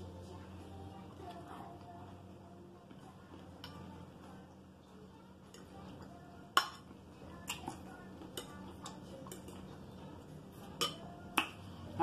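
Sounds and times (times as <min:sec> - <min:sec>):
fork clinking on ceramic bowl: 0:10.7 - 0:11.2.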